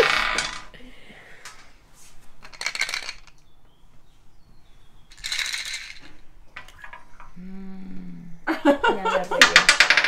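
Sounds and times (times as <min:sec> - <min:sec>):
plastic cubes rattling: 0:02.4 - 0:03.4, 0:05.1 - 0:07.0.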